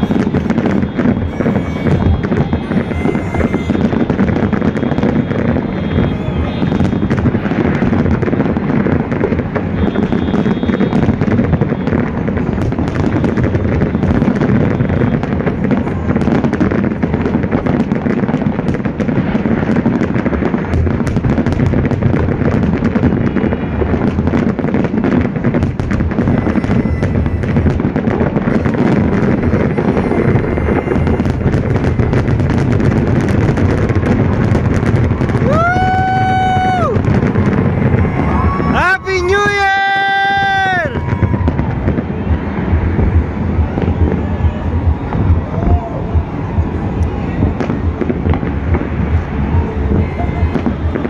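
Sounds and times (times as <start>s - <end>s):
firework shells bursting: 0.0s - 15.3s, 17.6s - 39.4s
fountain fireworks firing: 0.0s - 51.0s.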